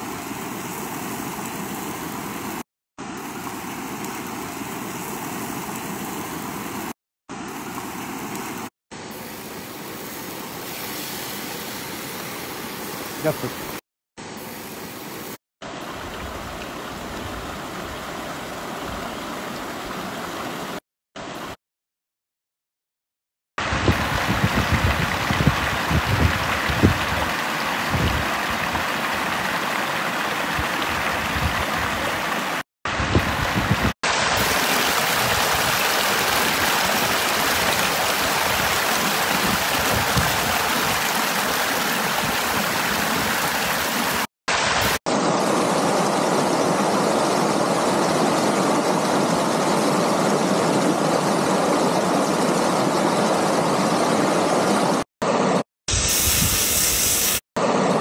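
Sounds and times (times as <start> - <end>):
stream rushing over rocks: 23.6 - 52.2.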